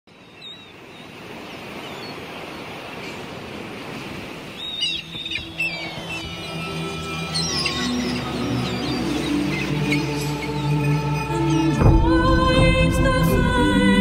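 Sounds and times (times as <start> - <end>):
sea washing: 0.4 - 14.0
bird chirps: 4.6 - 11.8
music with held low notes: 5.1 - 14.0.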